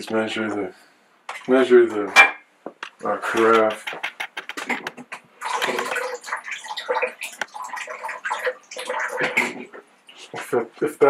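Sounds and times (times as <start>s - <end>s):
liquid pouring: 5.3s - 9.8s.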